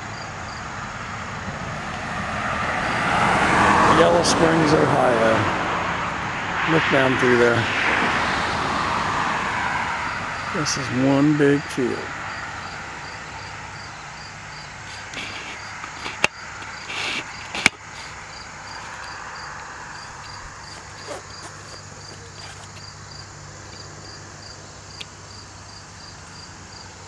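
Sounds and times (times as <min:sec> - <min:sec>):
cricket chirping: 0:00.0 - 0:27.0
outdoor hiss: 0:10.3 - 0:27.0.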